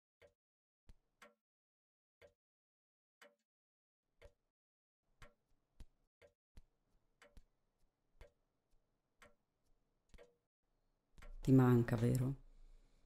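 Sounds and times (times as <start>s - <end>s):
clock ticking faintly: 11.2s - 12.3s.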